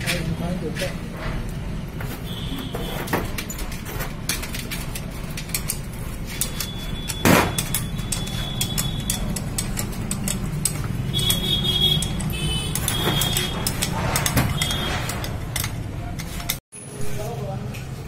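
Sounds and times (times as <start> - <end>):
metal tools clinking and tapping: 2.8 - 16.9
loud metallic clank: 6.7 - 15.8.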